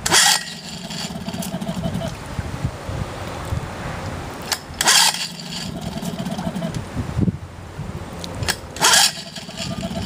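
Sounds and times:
recoil starter rope pulled: 0.0s - 2.2s, 4.5s - 6.8s, 8.4s - 10.0s.

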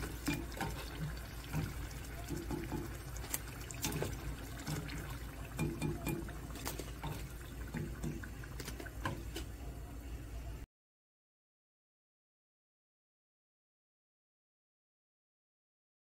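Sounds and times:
deep-frying in hot oil: 0.0s - 10.3s.

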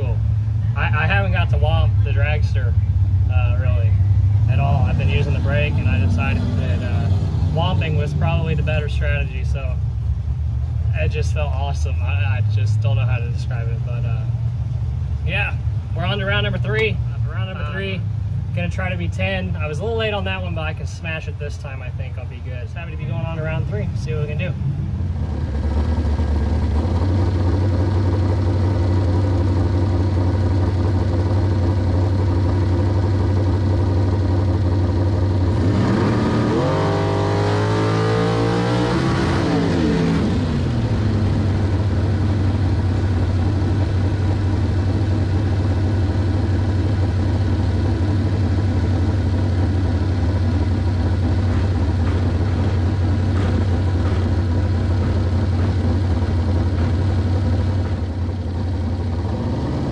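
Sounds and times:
engine revving: 0.0s - 0.2s, 0.8s - 9.8s, 22.8s - 59.9s
dragster engine idling: 0.0s - 35.6s, 40.4s - 59.5s.

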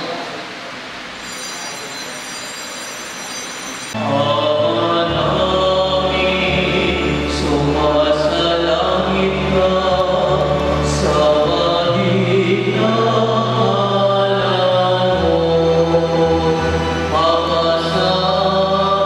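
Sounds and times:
organ chords: 3.6s - 19.0s
choir and congregation singing: 4.0s - 19.0s.

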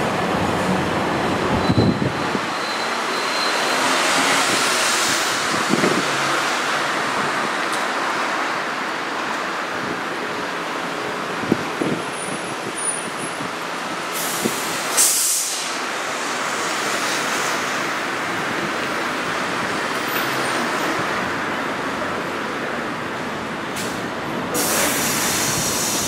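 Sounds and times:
streetcar rolling on track: 0.0s - 26.0s
short loud hiss: 14.2s - 15.8s, 24.6s - 26.0s.

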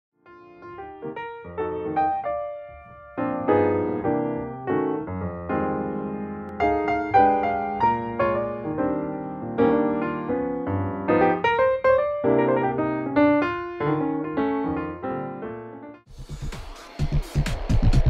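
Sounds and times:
piano music: 0.2s - 16.1s.

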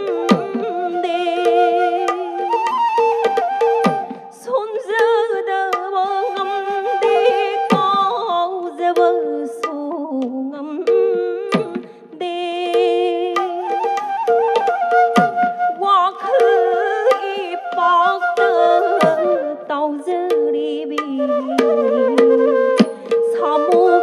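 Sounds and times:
person singing: 0.0s - 2.8s, 4.0s - 13.9s, 15.8s - 24.0s
flute melody: 0.0s - 4.5s, 6.1s - 8.5s, 13.4s - 20.1s, 21.1s - 24.0s.

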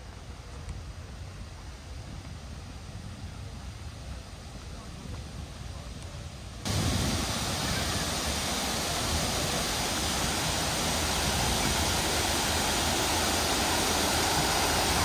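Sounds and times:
waterfall rushing: 6.6s - 15.0s.

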